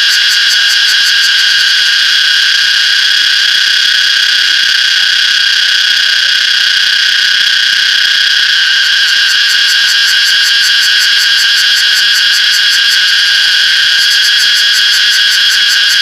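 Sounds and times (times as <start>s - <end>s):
cicada buzzing: 0.0s - 16.0s.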